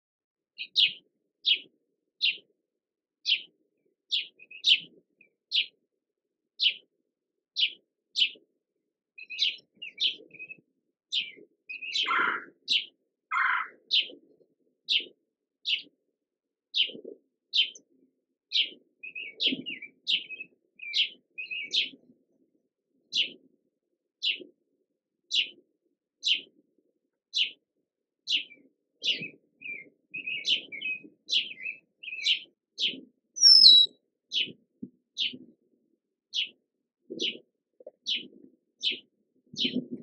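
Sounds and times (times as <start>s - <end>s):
bird squeaky call notes: 33.4s - 33.9s.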